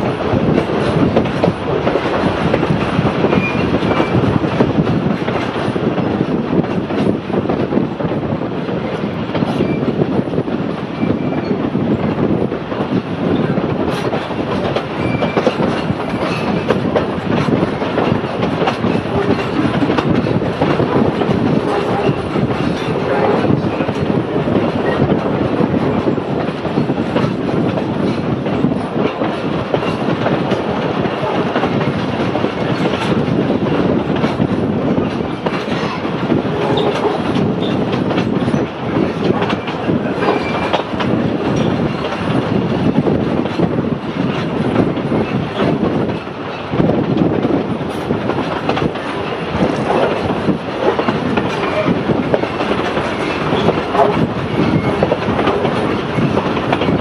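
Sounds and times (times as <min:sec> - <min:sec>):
train carriage rumble and rattle: 0:00.0 - 0:57.0
wheels clicking over rail joints: 0:13.0 - 0:57.0.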